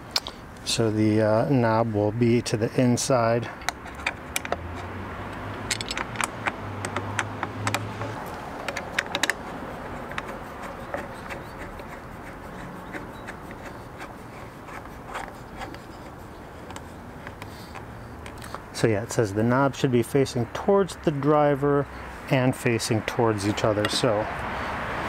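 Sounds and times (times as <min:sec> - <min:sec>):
plastic parts clicking and knocking: 0:03.6 - 0:12.0, 0:12.9 - 0:18.6.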